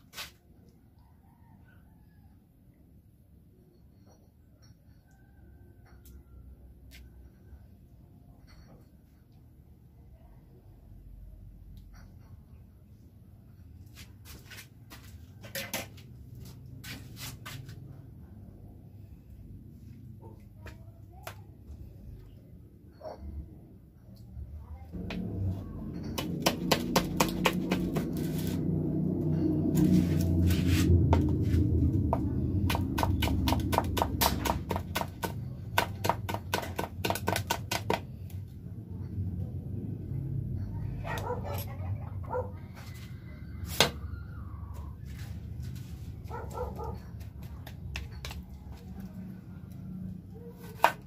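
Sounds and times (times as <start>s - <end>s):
low steady hum: 17.8s - 50.5s
knife chopping on plastic board: 26.2s - 28.2s, 32.1s - 38.0s.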